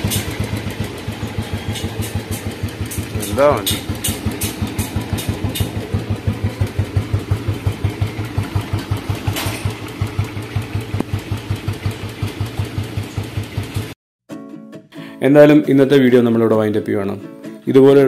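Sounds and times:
engine knock: 0.0s - 14.0s
motorcycle engine idling: 0.0s - 14.0s.

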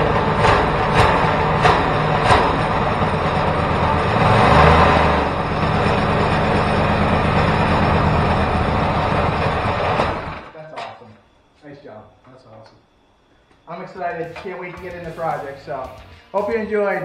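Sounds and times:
twin-cylinder engine running: 0.0s - 10.5s.

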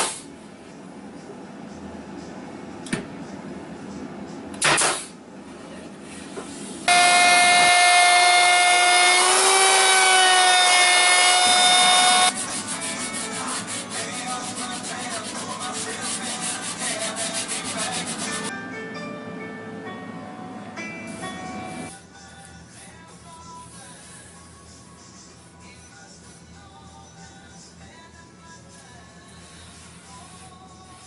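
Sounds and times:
power tool running: 6.9s - 12.4s
board sanded by hand: 11.2s - 18.5s.

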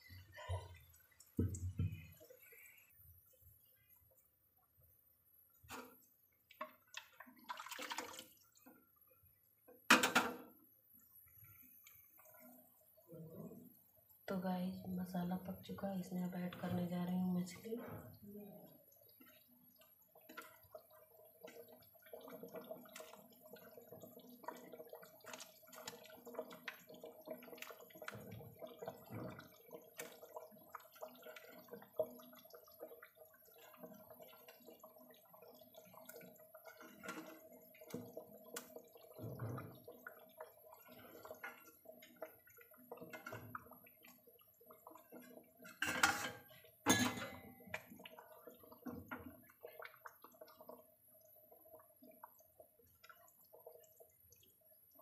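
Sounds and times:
curry bubbling: 0.0s - 55.0s
soft wet plops: 47.6s - 55.0s.

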